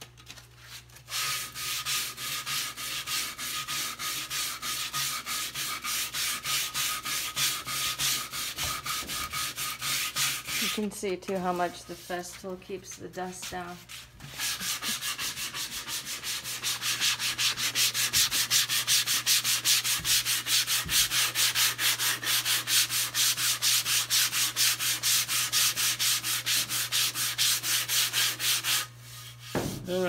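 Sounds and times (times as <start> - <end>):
sandpaper rasping on wood: 0.6 - 30.0
knocks: 29.5 - 29.9.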